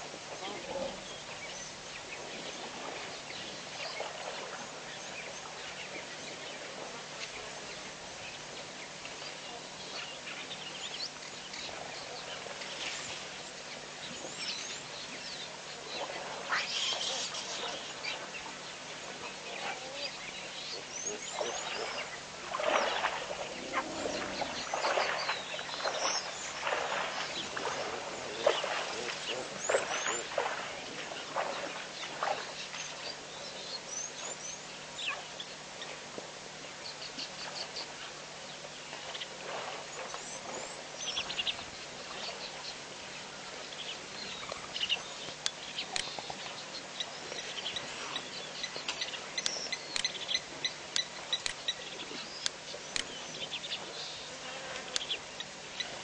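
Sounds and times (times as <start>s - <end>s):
wild animals calling: 23.3s - 25.2s.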